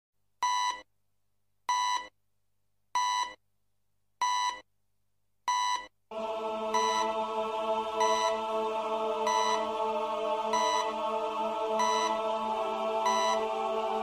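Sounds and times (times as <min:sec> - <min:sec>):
short electronic beeps: 0:04.2 - 0:04.6
sustained synth music: 0:06.1 - 0:14.0.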